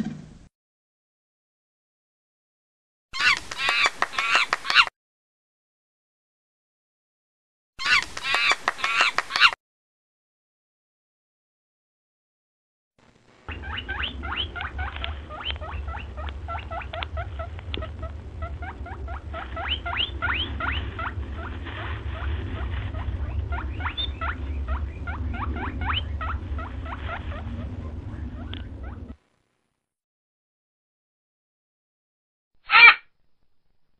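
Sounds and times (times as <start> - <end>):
steady low rumble: 13.0 - 29.7
high-pitched rising squeaks: 13.5 - 29.2.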